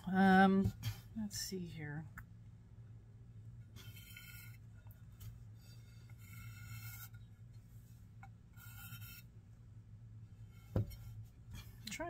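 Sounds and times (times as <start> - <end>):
steady low hum: 0.0 - 12.0
pencil scratching on clay plate: 3.7 - 4.9, 5.5 - 7.3, 8.5 - 9.4.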